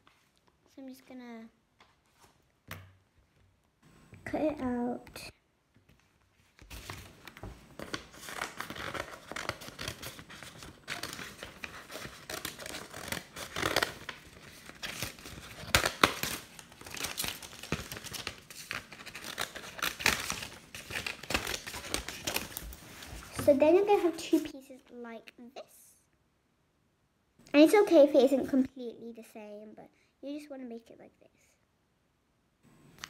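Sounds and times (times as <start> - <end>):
paper rustling and crinkling: 5.8 - 24.5
scissors cutting paper: 8.2 - 22.7.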